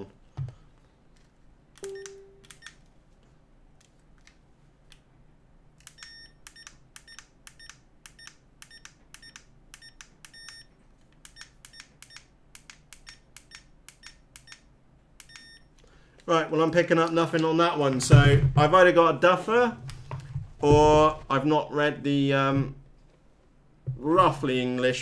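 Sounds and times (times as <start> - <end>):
short faint beeps: 1.8 - 2.7, 6.0 - 10.7, 15.3 - 15.7.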